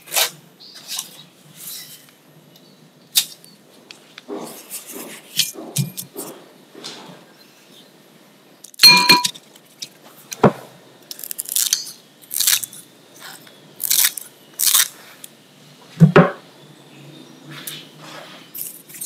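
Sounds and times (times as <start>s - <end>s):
glass bowl clinking: 8.8s - 9.4s.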